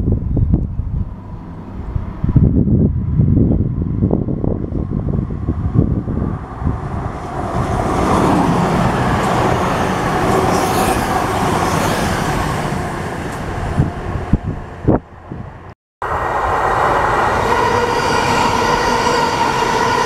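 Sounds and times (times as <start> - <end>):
wind buffeting microphone: 0.0 - 20.0
train passing close by: 0.7 - 20.0.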